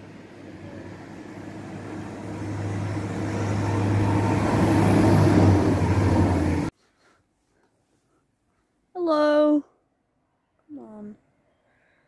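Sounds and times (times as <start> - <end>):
train engine drone and rumble: 0.0 - 6.7.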